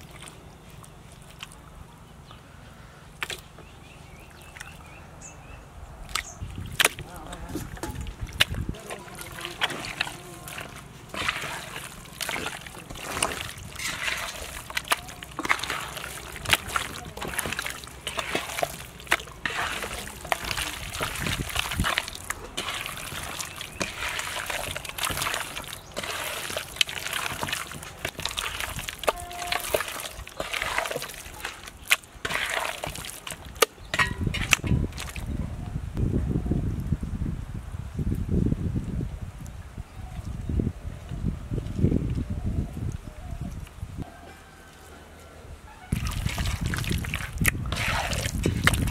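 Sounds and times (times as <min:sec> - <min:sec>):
hands kneading wet meat: 0:00.0 - 0:01.9, 0:06.1 - 0:35.4, 0:45.9 - 0:48.9.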